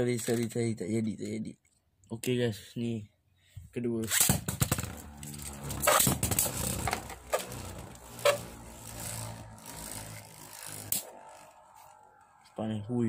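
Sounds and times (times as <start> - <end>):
spinning tops whirring: 4.5 - 12.3.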